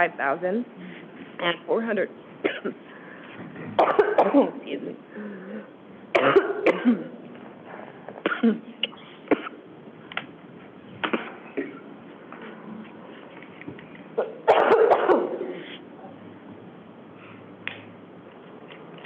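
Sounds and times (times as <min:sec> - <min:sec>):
woman coughing: 0:02.4 - 0:02.8, 0:03.8 - 0:04.6, 0:06.2 - 0:07.2, 0:08.2 - 0:09.6, 0:14.4 - 0:15.8
throat clearing: 0:06.2 - 0:07.2.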